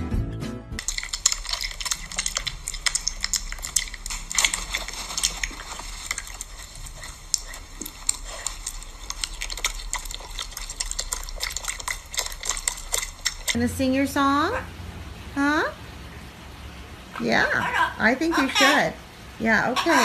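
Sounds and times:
piglet chewing and smacking: 0.8s - 13.9s.

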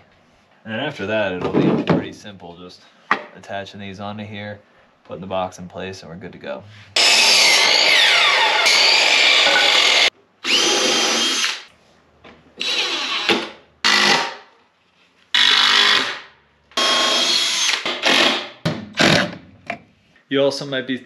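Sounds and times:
cordless drill driving screws: 7.0s - 11.7s, 12.6s - 14.3s, 15.4s - 16.2s, 16.8s - 18.4s
miter saw cutting: 7.0s - 11.7s.

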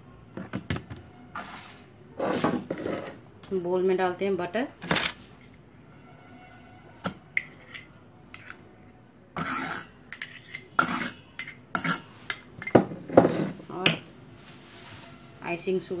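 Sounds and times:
metal spoon scraping steel pot: 4.9s - 5.6s, 7.2s - 13.6s.

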